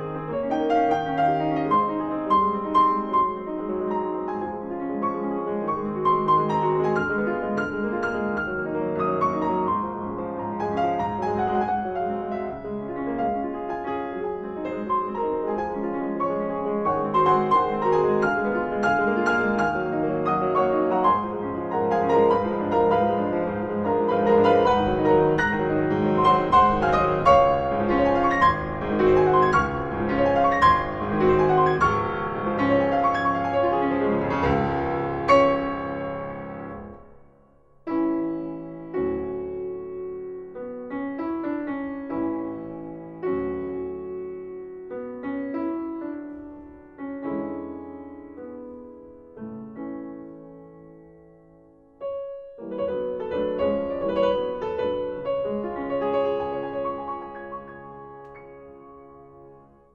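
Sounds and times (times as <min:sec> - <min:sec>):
solo piano music: 0:00.0 - 0:59.9.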